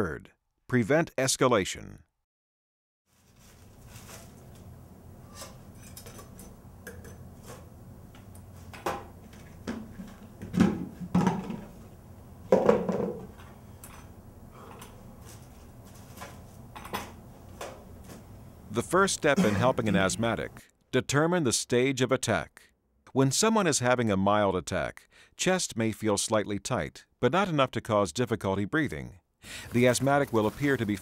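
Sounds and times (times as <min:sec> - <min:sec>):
low steady hum: 0:03.3 - 0:20.6
plastic paint bucket knocking: 0:09.7 - 0:11.7, 0:12.5 - 0:13.3.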